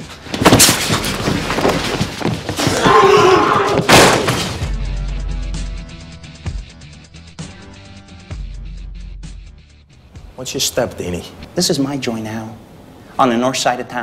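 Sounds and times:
loud thuds: 3.7 - 4.7
crash: 3.8 - 4.8.

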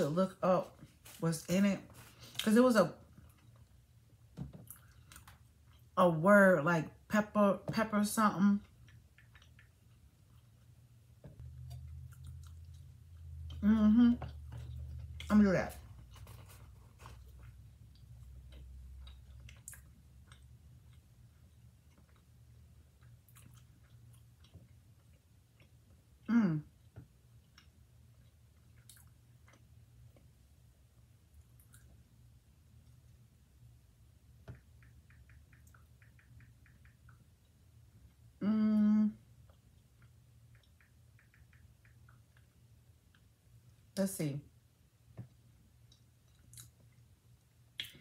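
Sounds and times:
low room hum: 0.0 - 48.0
woman humming: 13.5 - 14.3, 26.3 - 26.7, 38.4 - 39.2.

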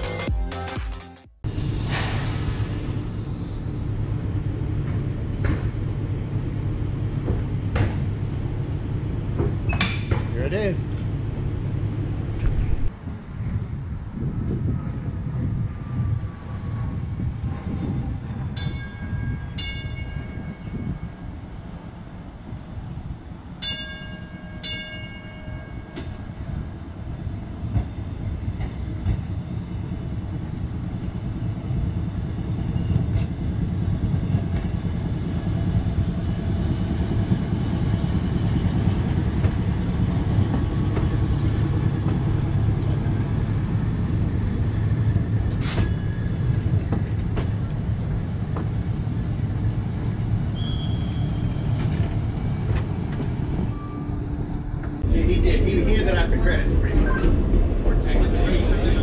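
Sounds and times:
trolley motors and wheels on rails: 1.5 - 59.0
streetcar gong ringing: 18.5 - 21.3, 23.6 - 26.3, 50.4 - 52.4.

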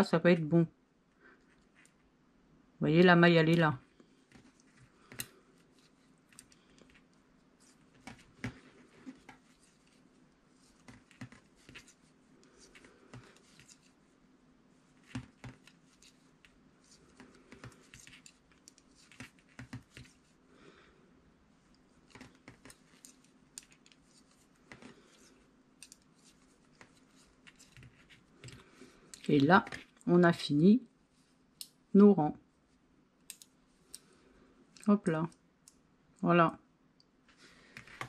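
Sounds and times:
knitting needles clicking: 33.2 - 34.1.

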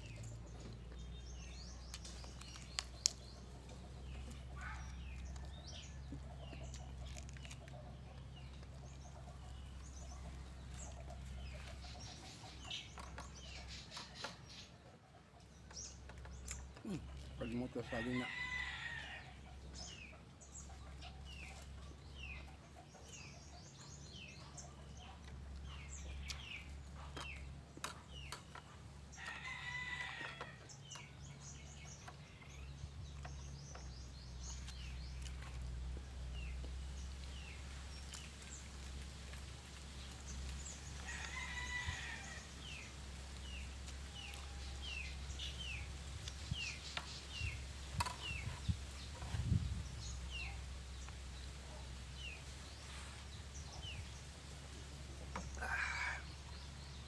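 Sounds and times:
rooster crowing: 17.9 - 19.3, 41.0 - 42.5.

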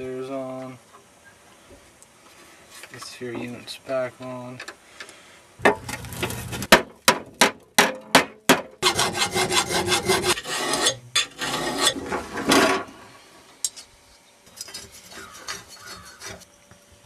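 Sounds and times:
scraping rusty metal: 5.6 - 6.7, 8.8 - 16.5.

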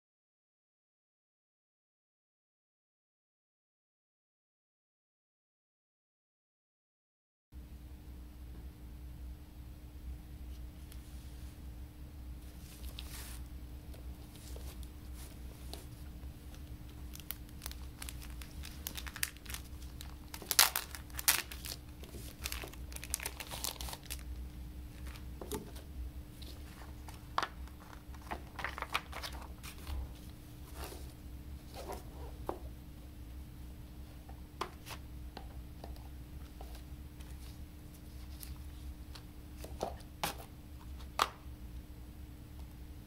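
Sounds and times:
faint steady hum: 7.6 - 43.0
plastic wrap crinkling and tearing: 16.5 - 25.3, 26.6 - 30.0.

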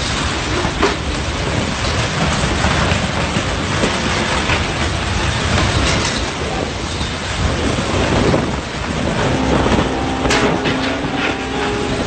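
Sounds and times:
wind gusts driving heavy rain: 0.0 - 12.0.

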